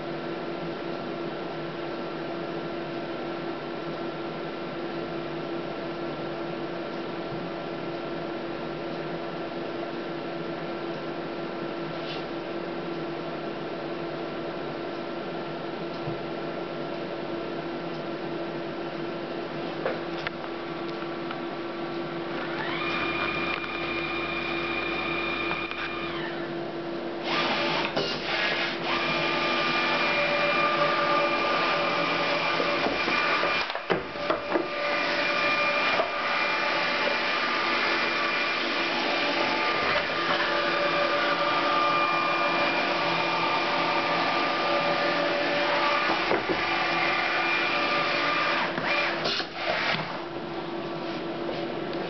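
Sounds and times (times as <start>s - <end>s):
label printer running with whines: 22.2s - 26.6s, 27.2s - 50.2s.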